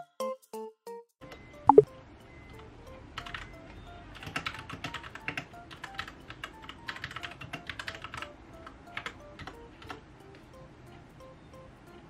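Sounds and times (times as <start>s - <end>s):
soft background music: 0.0s - 12.0s.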